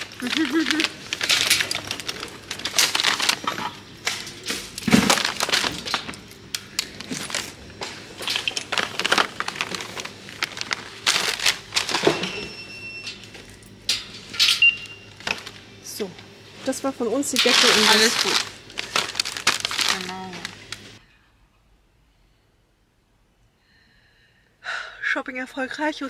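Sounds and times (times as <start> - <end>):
plastic packaging crinkling: 0.0 - 12.5, 15.1 - 15.7, 17.3 - 21.0.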